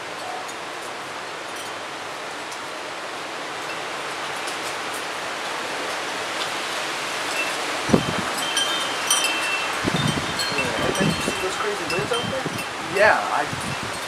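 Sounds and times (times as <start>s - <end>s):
storm wind rushing through trees: 0.0s - 14.0s
wind chimes tinkling: 7.3s - 14.0s.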